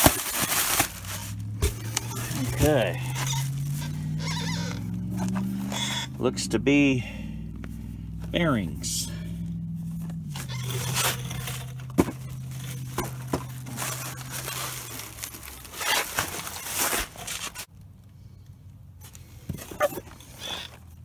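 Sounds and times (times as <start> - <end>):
plastic packing crinkling: 0.0 - 3.5, 10.4 - 17.7
low steady hum: 0.3 - 19.1.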